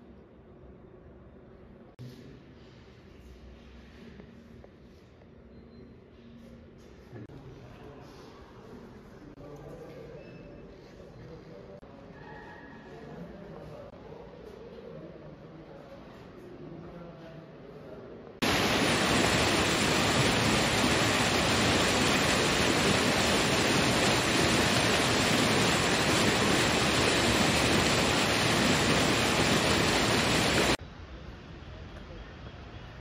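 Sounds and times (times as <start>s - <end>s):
stream rushing over rocks: 18.4s - 30.8s.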